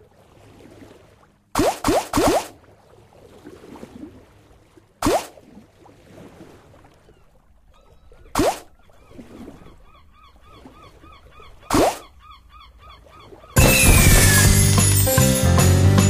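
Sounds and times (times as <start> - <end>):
loud rising game sound: 13.6 - 15.8.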